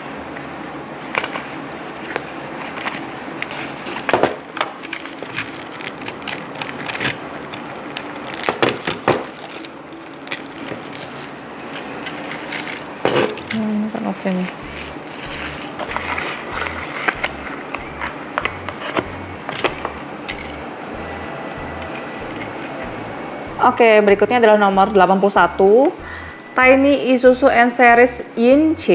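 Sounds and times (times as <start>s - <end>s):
wrapping sheet crinkling: 0.4s - 19.8s
cardboard box crunching: 1.0s - 18.2s.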